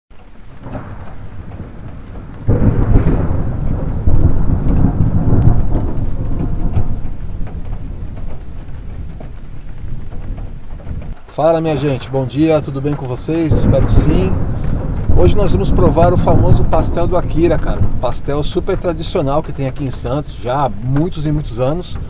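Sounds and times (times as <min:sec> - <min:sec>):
heavy rain on a car: 0:00.1 - 0:22.0
rolling thunder: 0:00.2 - 0:22.0.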